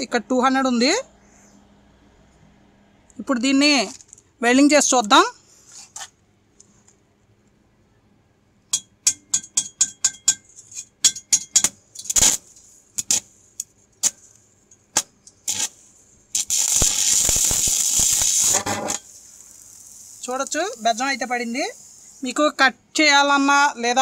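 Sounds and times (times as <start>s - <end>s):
welding arc crackling: 12.0s - 14.4s, 15.0s - 22.6s.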